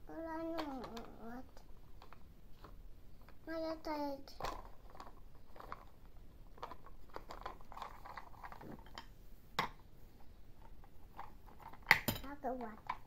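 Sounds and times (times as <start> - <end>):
plastic toy parts clicking and rattling: 0.4 - 3.4, 4.2 - 9.1, 10.6 - 13.0.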